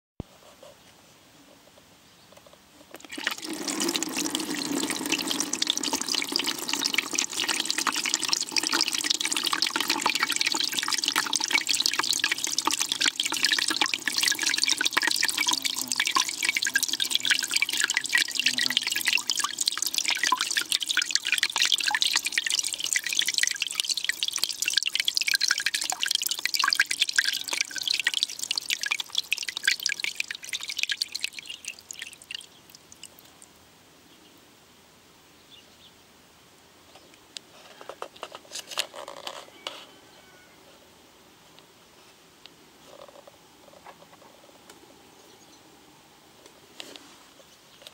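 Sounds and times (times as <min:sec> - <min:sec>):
shower water splashing in bucket: 0:03.0 - 0:33.2.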